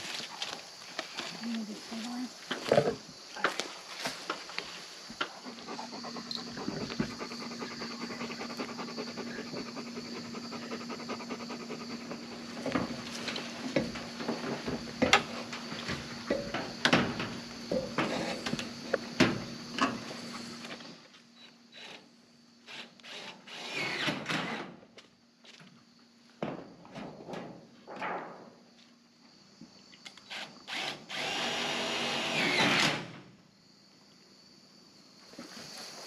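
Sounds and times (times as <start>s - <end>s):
dog panting: 5.2s - 12.8s.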